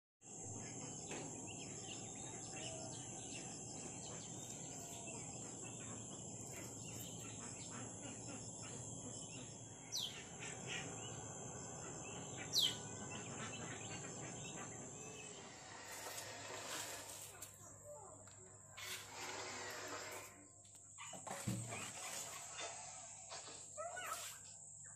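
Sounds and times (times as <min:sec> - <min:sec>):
high-pitched insect drone: 0:00.3 - 0:20.8
downward sweeping bird calls: 0:02.0 - 0:17.3.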